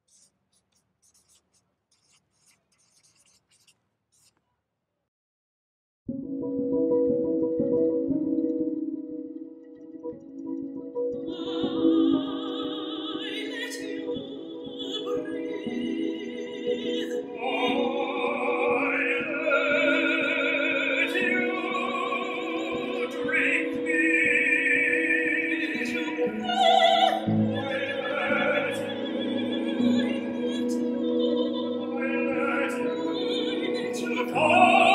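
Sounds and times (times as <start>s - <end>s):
operatic singing: 11.2s - 34.9s.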